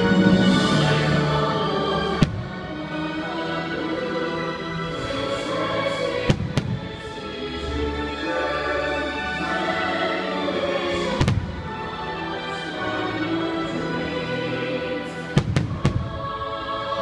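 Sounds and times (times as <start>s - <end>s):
orchestral music: 0.0s - 17.0s
fireworks bangs: 6.3s - 7.0s, 11.2s - 11.6s, 15.4s - 16.2s.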